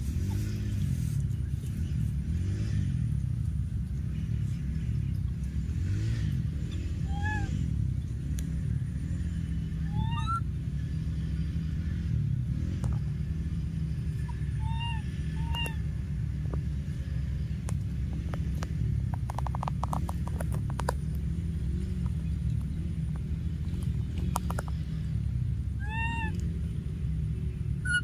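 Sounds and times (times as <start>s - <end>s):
steady low rumble: 0.0s - 28.0s
baby monkeys squeaky calls: 6.6s - 7.7s, 9.8s - 10.5s, 14.2s - 16.0s, 25.8s - 26.5s, 27.8s - 28.0s
quick run of clicks: 17.6s - 21.3s, 21.9s - 25.0s.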